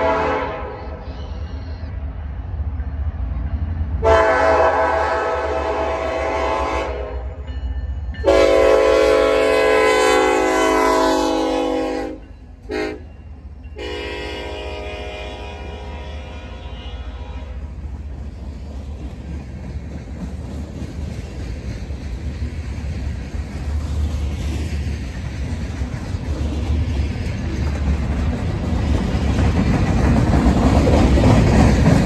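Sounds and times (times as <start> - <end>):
locomotive air horn blasts: 0.0 - 1.0, 4.0 - 7.4, 8.2 - 13.1, 13.8 - 17.7.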